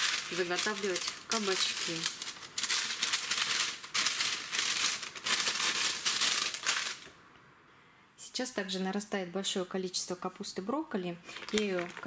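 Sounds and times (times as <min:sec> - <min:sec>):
baking paper crinkling: 0:00.0 - 0:07.2, 0:11.3 - 0:12.0.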